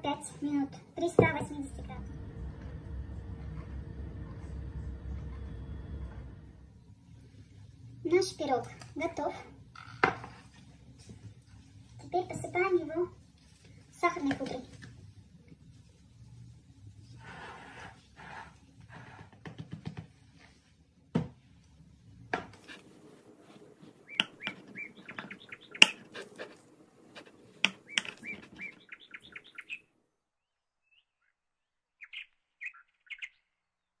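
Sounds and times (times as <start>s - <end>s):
high bird-like chirps: 24.0s - 26.1s, 27.7s - 29.8s, 32.0s - 33.4s.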